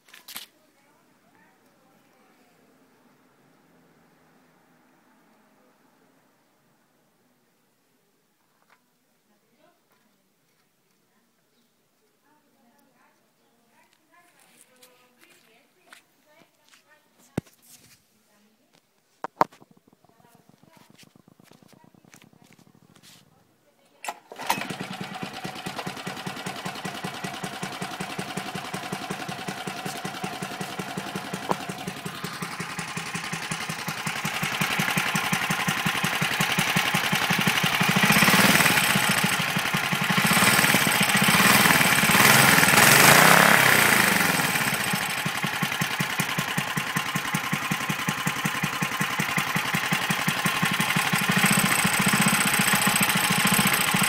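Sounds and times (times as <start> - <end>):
small engine idling and revving: 19.7 - 23.2, 24.1 - 54.0.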